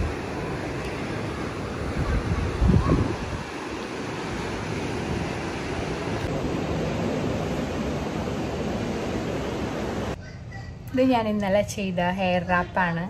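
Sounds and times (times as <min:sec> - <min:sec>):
ocean surf rushing: 0:00.0 - 0:10.2
wind buffeting the microphone: 0:00.0 - 0:10.2
wind: 0:00.0 - 0:13.0.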